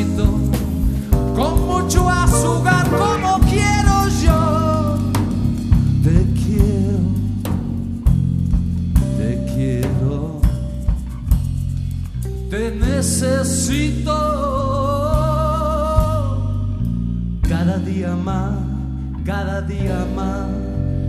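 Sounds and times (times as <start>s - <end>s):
bass notes: 0.0s - 21.0s
drum hits: 0.1s - 11.8s
wavering melody line: 1.8s - 5.0s.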